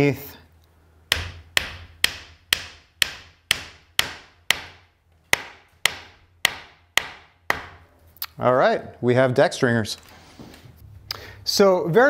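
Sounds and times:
hammer blows on wooden peg: 1.1s - 7.9s.

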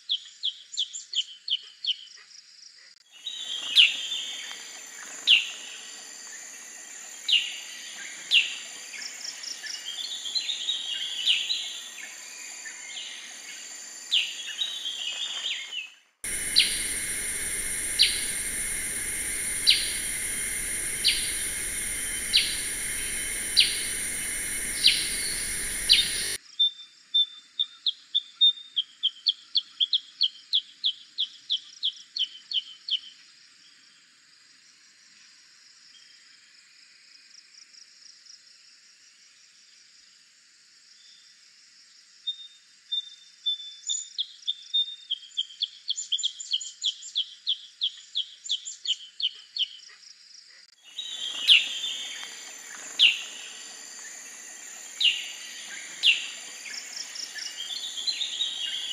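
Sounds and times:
bird calls: 7.2s - 26.4s
bird chirping rapidly: 16.3s - 26.4s.

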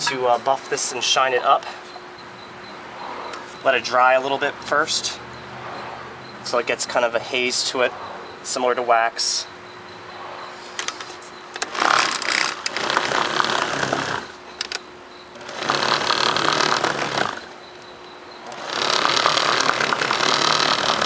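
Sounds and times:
car polisher motor hum: 11.6s - 14.5s, 15.4s - 17.9s, 18.5s - 21.0s.

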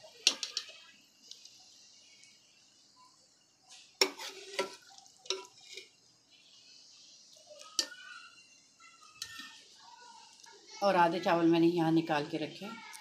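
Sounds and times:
metal spoon clinking against pots: 0.1s - 0.9s, 4.0s - 6.0s, 7.6s - 8.0s, 9.2s - 9.6s.

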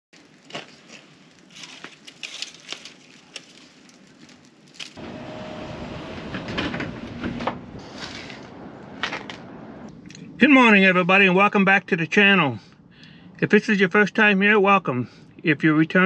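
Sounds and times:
knocks and clatters: 6.1s - 9.5s.

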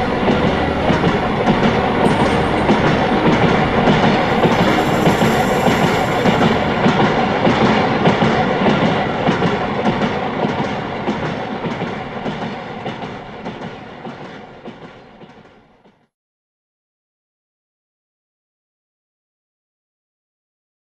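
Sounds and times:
train wheels clattering over rail joints: 0.0s - 15.7s.

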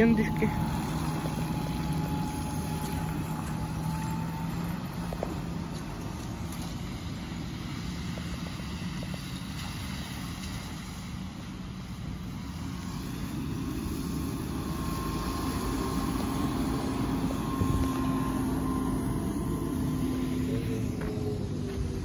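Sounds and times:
electric motor whine: 0.0s - 7.0s, 12.6s - 22.0s
low street noise: 0.0s - 22.0s.

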